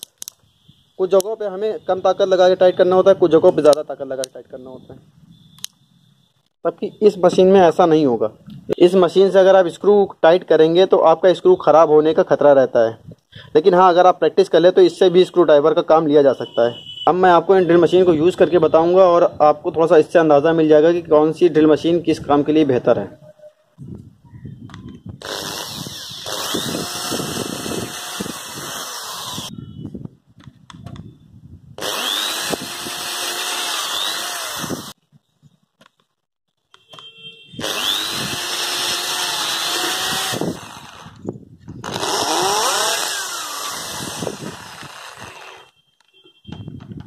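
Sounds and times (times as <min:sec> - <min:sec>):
electric drill boring into wood: 0:25.2 - 0:29.5, 0:31.8 - 0:35.0, 0:37.6 - 0:45.7.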